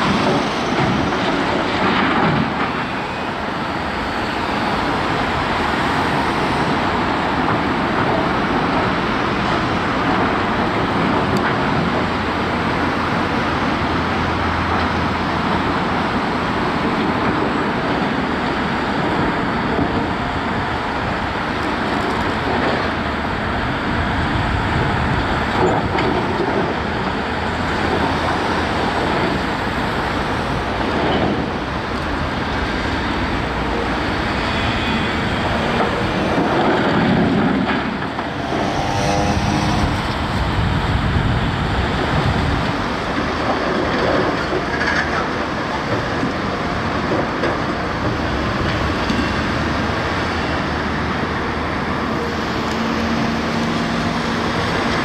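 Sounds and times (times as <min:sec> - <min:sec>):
heavy machinery running: 0:00.0 - 0:55.0.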